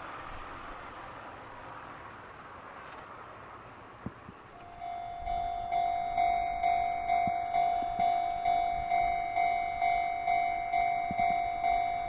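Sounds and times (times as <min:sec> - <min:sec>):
level-crossing alarm bell: 0:04.6 - 0:12.0.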